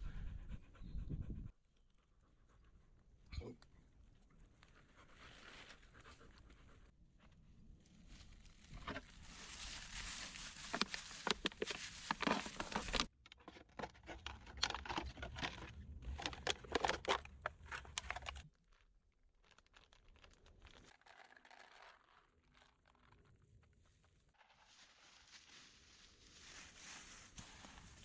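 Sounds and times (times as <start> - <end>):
plastic bag crinkling: 9.2 - 13.1.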